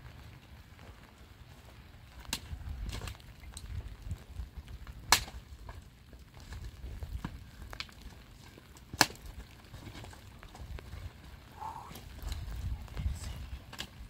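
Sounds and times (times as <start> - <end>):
sharp cracks: 5.0 - 5.5, 8.7 - 9.4.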